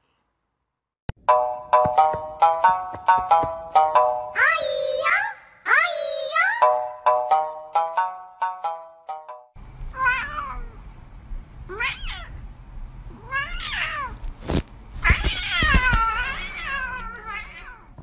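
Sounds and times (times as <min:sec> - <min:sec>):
plucked music notes: 0:01.2 - 0:04.4
cat meowing: 0:10.0 - 0:10.8, 0:11.7 - 0:12.4, 0:13.1 - 0:14.2, 0:15.0 - 0:18.0.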